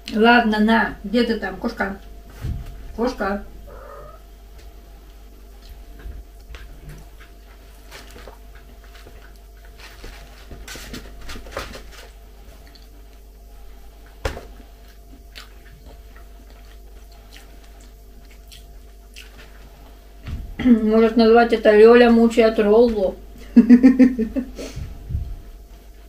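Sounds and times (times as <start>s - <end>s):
person chewing food: 3.7s - 9.8s, 12.4s - 20.1s.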